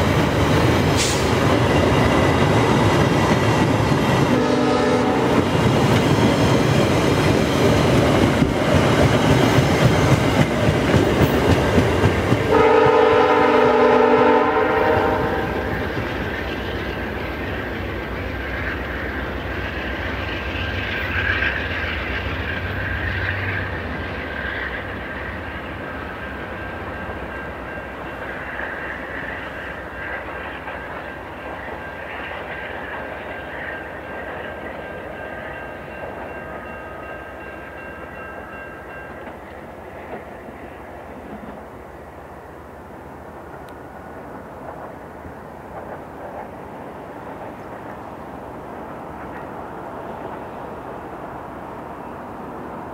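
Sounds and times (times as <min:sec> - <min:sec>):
train horn blast: 0:04.3 - 0:05.5, 0:12.4 - 0:15.9
train wheels clattering over rail joints: 0:05.3 - 0:12.7.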